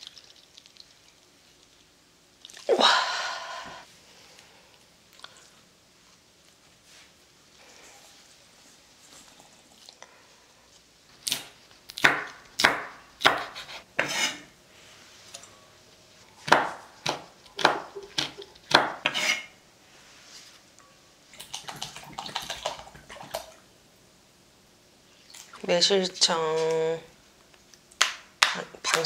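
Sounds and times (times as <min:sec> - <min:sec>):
knife chopping on wooden board: 0:12.0 - 0:14.2, 0:16.4 - 0:19.2.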